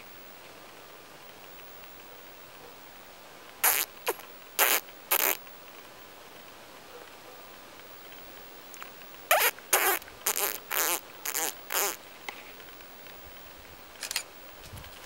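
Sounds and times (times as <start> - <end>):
faint click: 7.8 - 9.2.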